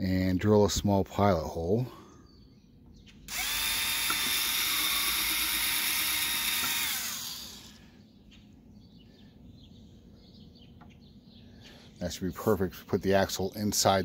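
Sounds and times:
cordless drill boring plastic: 0:03.3 - 0:07.8.

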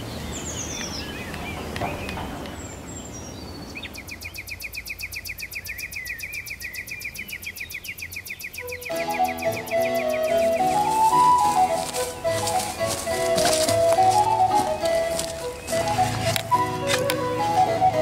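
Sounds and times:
bird chirps: 0:00.0 - 0:18.0.

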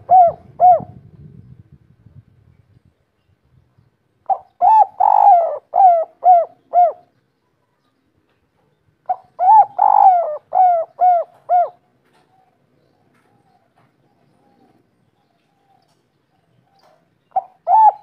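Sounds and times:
dove cooing: 0:00.0 - 0:01.1, 0:04.2 - 0:07.1, 0:09.0 - 0:16.0, 0:16.6 - 0:18.0.

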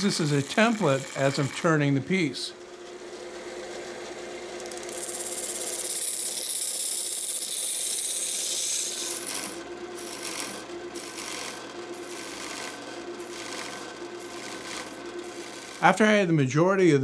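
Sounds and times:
chisel cutting wood on lathe: 0:00.0 - 0:02.0, 0:04.6 - 0:16.1
lathe humming: 0:00.0 - 0:16.2.

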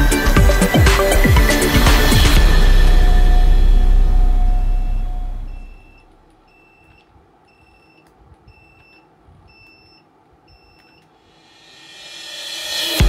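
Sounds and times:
background music: 0:00.0 - 0:06.0.

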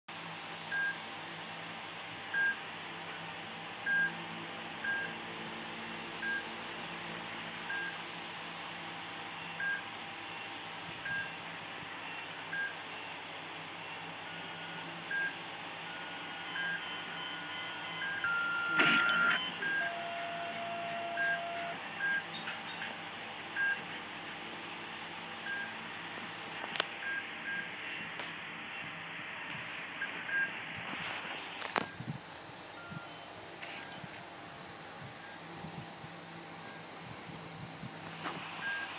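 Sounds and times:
patient monitor beeping: 0:00.7 - 0:01.0, 0:02.3 - 0:02.6, 0:03.8 - 0:04.2, 0:04.8 - 0:05.3, 0:06.1 - 0:06.7, 0:07.6 - 0:08.0, 0:09.4 - 0:11.4, 0:12.0 - 0:13.0, 0:13.8 - 0:24.4, 0:25.4 - 0:25.8, 0:26.7 - 0:28.0, 0:30.0 - 0:34.3, 0:38.0 - 0:38.9
steady alarm tones: 0:09.4 - 0:22.8.

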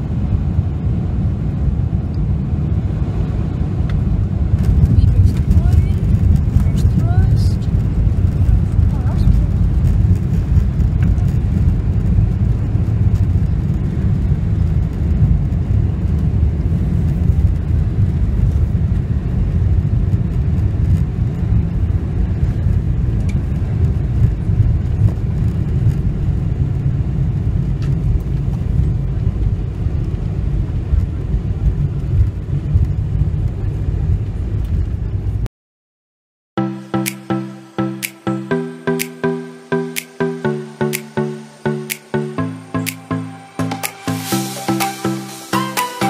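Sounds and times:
airplane cabin rumble: 0:00.0 - 0:35.5.

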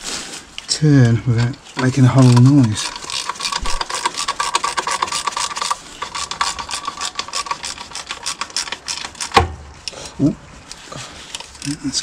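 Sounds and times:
metallic clicking and rubbing: 0:01.3 - 0:10.0.

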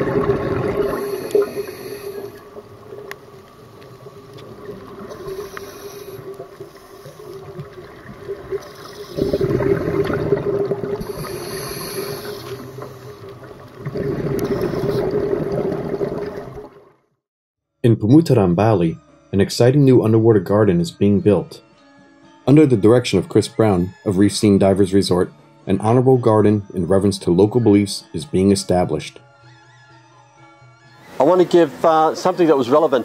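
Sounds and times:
bubbles rushing underwater: 0:00.0 - 0:16.9
regulator hissing: 0:00.9 - 0:02.6, 0:05.0 - 0:07.5, 0:11.0 - 0:13.2.

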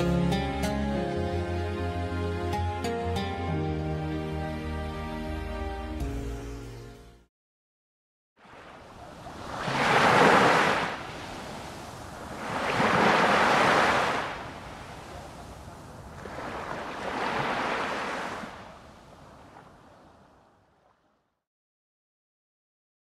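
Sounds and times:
waves washing among rocks: 0:09.3 - 0:15.2.

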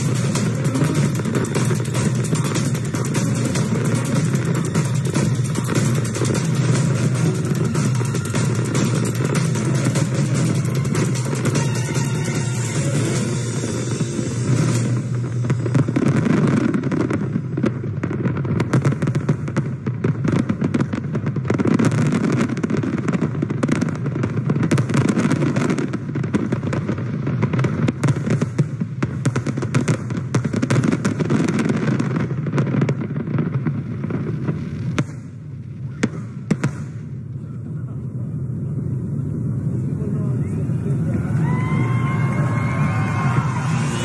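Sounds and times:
steady background noise: 0:00.0 - 0:21.6, 0:32.4 - 0:44.0
fireworks bangs and crackling: 0:00.0 - 0:44.0.

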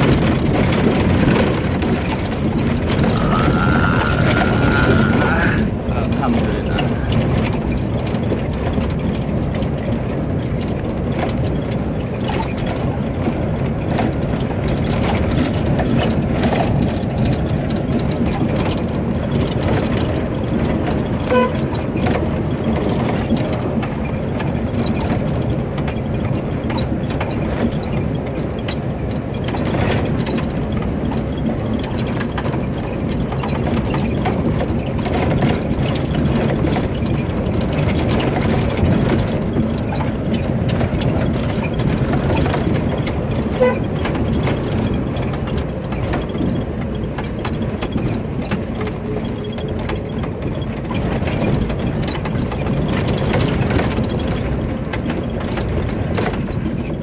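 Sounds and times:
body rattling and knocking: 0:00.0 - 0:57.0
car engine running: 0:00.0 - 0:57.0.

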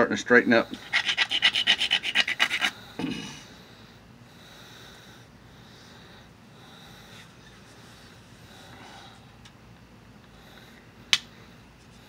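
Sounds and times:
faint breathing: 0:02.7 - 0:09.4, 0:10.3 - 0:12.0.

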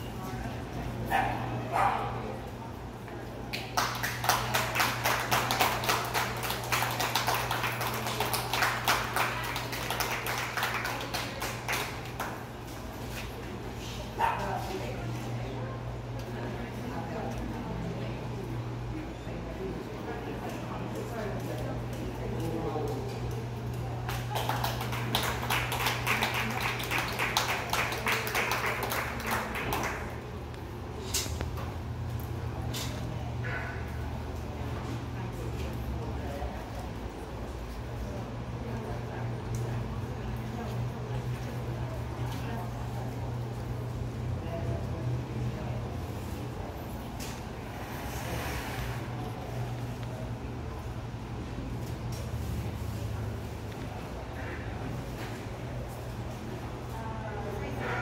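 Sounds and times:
small crowd applauding: 0:03.5 - 0:12.7, 0:24.0 - 0:30.3.

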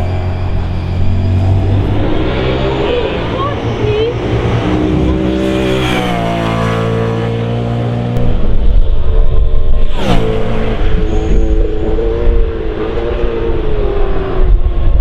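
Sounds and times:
race car engine passing by: 0:00.0 - 0:08.2.

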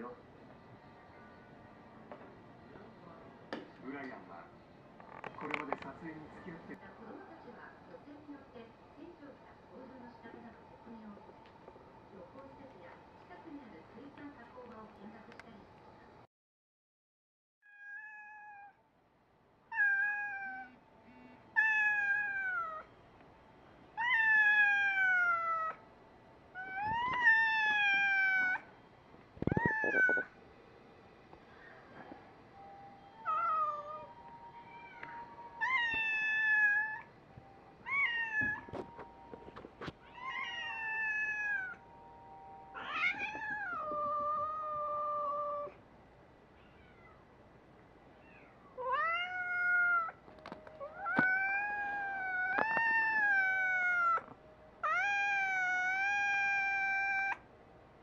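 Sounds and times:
cat meowing: 0:17.6 - 0:18.8, 0:19.7 - 0:20.8, 0:21.6 - 0:22.9, 0:24.0 - 0:25.8, 0:26.6 - 0:28.6, 0:29.4 - 0:30.3, 0:33.2 - 0:34.1, 0:34.7 - 0:37.1, 0:37.8 - 0:38.7, 0:40.0 - 0:41.8, 0:42.8 - 0:45.8, 0:46.6 - 0:47.2, 0:48.2 - 0:50.2, 0:50.8 - 0:57.4.

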